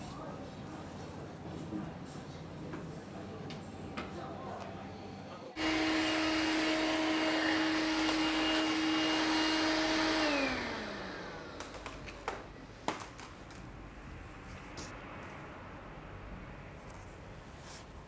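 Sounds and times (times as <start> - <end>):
vacuum cleaner whirring: 5.6 - 12.4.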